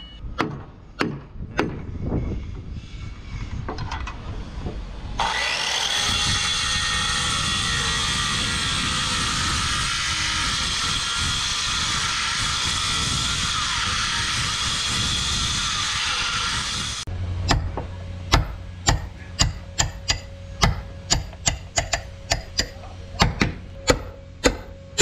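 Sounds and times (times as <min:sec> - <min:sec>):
woodworking power tool running: 0:05.2 - 0:17.1.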